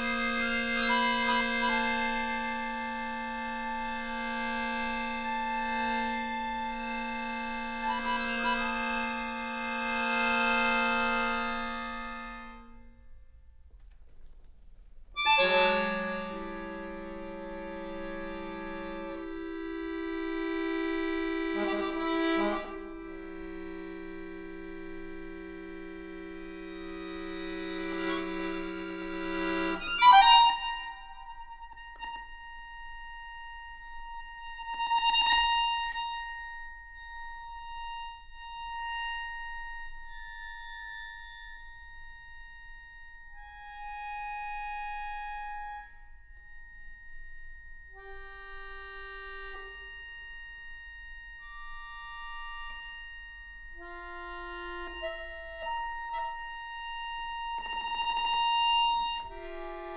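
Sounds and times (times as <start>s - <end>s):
solo accordion playing: 0.0s - 13.2s, 15.2s - 59.9s.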